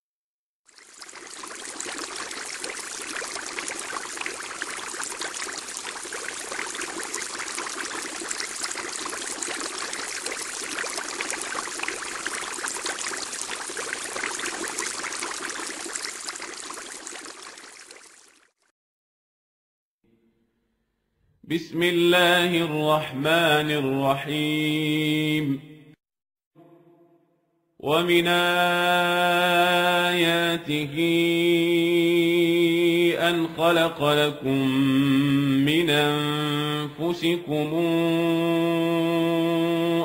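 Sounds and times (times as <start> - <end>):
running water rushing: 0.7 - 18.5.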